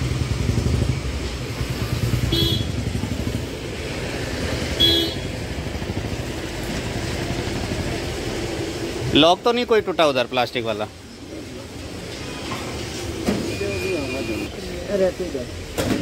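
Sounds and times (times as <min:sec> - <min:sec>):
traffic engine rumble: 0:00.0 - 0:16.0
vehicle horn toots: 0:02.2 - 0:02.9, 0:04.8 - 0:05.4.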